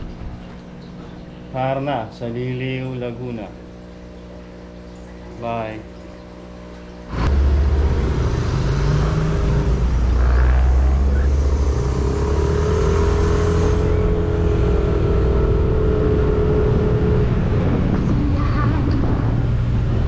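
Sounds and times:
scooter engine running: 7.1 - 18.7
road noise: 7.1 - 20.0.

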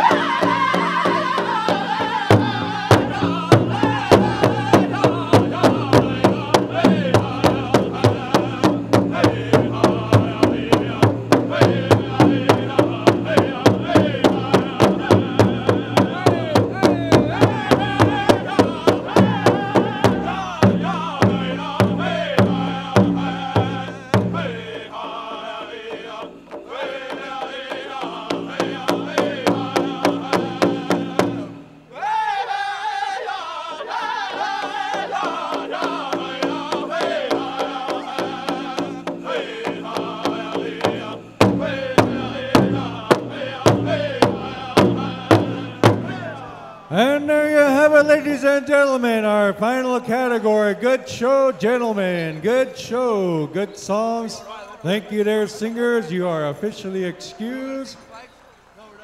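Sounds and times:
big drum beat: 0.0 - 31.9, 34.3 - 48.4
men singing in unison: 0.0 - 58.0.

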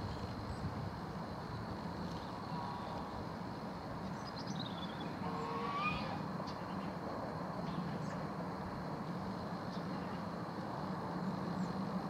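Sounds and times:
distant airliner rumble: 0.0 - 12.0.

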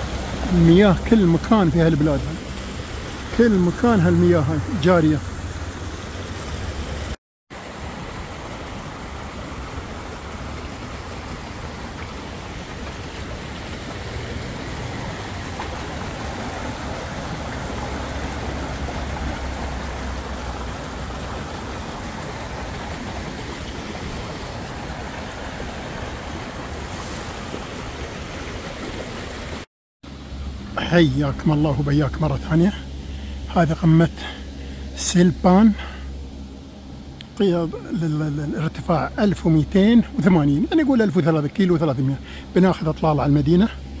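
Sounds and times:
water spilling off waterwheel: 0.0 - 29.7
stream running over rocks: 0.0 - 44.0.

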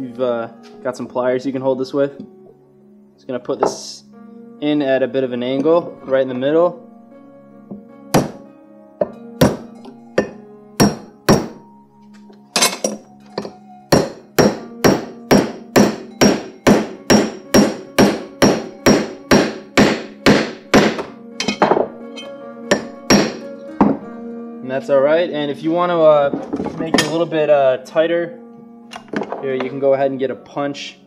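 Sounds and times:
hammer striking steel wedge: 8.1 - 8.4, 9.0 - 11.6, 12.6 - 24.0.

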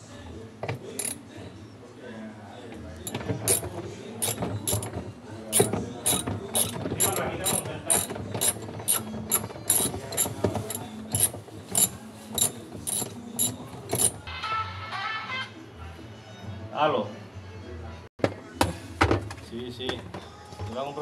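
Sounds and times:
ratchet wrench clicking: 3.1 - 4.9, 5.5 - 14.2.

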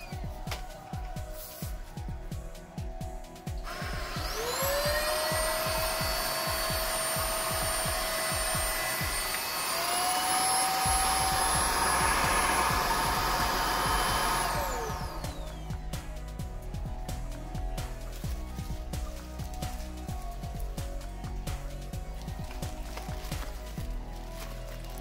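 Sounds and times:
background music with beat: 0.0 - 25.0
vacuum motor whine: 3.6 - 15.9.

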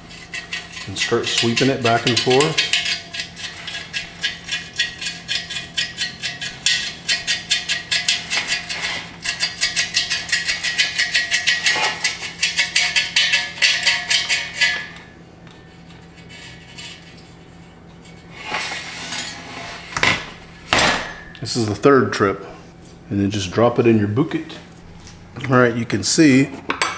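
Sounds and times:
metal shavings rattling in tube: 0.1 - 14.9.

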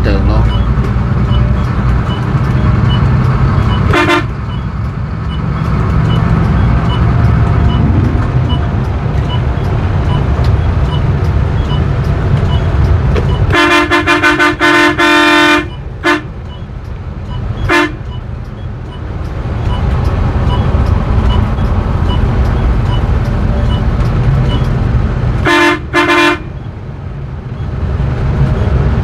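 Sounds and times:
engine and road rumble: 0.0 - 29.0
coach horn honking: 3.9 - 4.4, 13.5 - 16.3, 17.6 - 18.1, 25.4 - 26.6.

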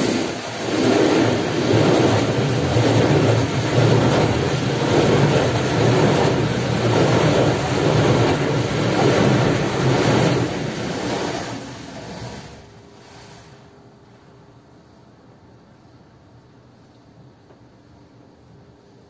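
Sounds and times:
car wash brushes and water spray: 0.0 - 13.9.

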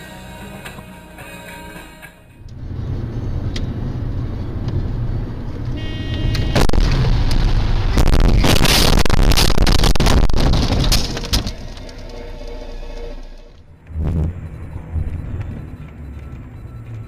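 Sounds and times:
low driving rumble: 2.3 - 17.0
loud crash bang: 6.5 - 11.8
crashing and rattling: 6.7 - 12.6
windshield shattering: 8.1 - 12.1.

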